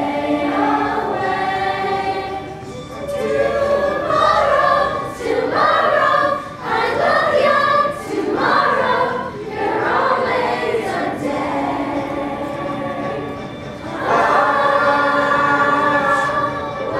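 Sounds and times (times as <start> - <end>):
young performers singing in chorus: 0.0 - 16.9.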